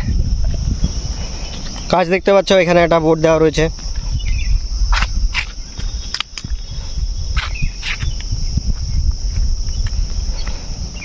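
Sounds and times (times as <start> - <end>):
high-pitched insect drone: 0.0 - 11.0
low rumble on microphone: 0.0 - 11.0
sharp clicks: 5.0 - 6.6.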